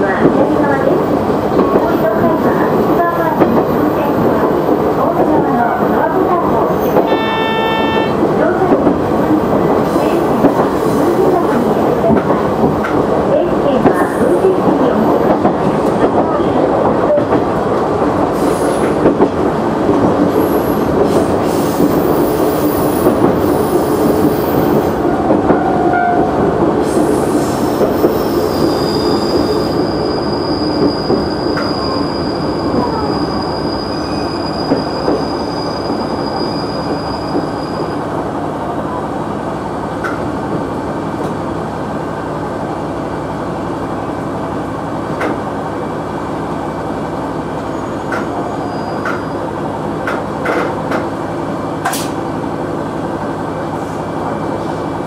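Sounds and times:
railcar rolling over rails: 0.0s - 55.0s
high brake squeal: 28.2s - 38.0s, 47.6s - 49.5s.

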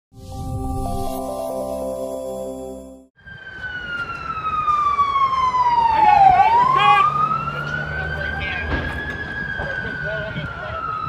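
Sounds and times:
short musical jingle: 0.2s - 3.2s
emergency vehicle siren wailing: 3.1s - 11.0s.

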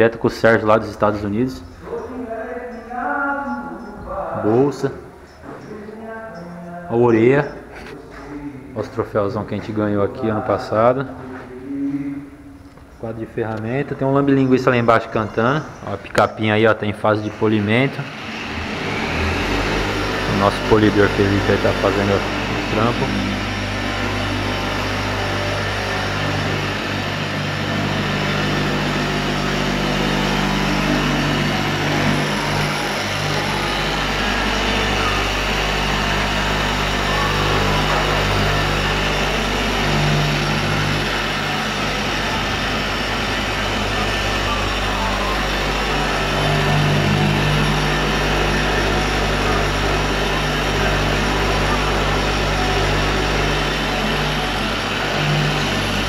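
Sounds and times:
electric polisher running: 17.2s - 56.0s.

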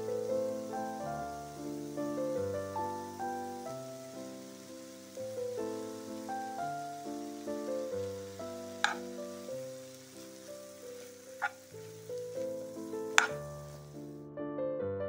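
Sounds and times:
vegetables sizzling in frying pan: 0.0s - 14.1s
soft piano music: 0.0s - 15.0s
spatula clicking against pan: 8.8s - 9.1s, 13.2s - 13.4s.

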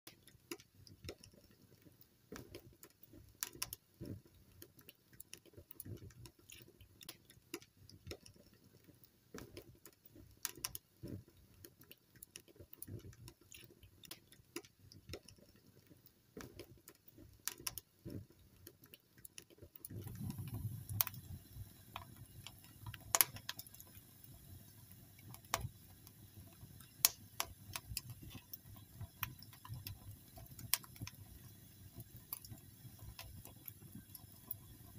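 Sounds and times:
wood fire crackling: 0.1s - 34.9s.

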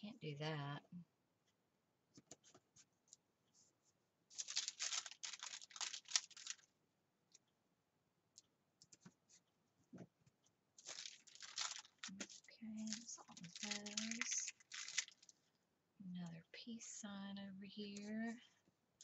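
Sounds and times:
paper stickers rustling: 4.3s - 6.6s, 10.8s - 15.4s.

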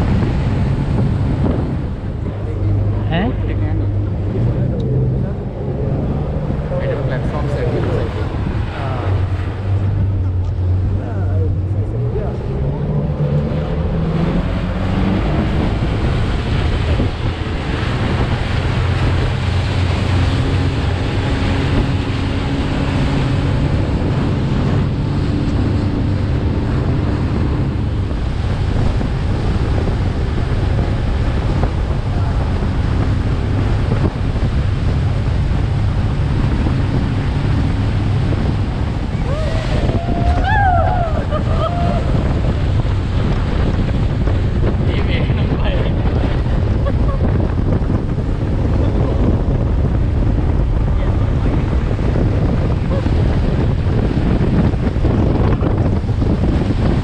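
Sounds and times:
boat engine drone: 0.0s - 57.0s
water rushing past hull: 0.0s - 57.0s
wind buffeting microphone: 0.0s - 57.0s.

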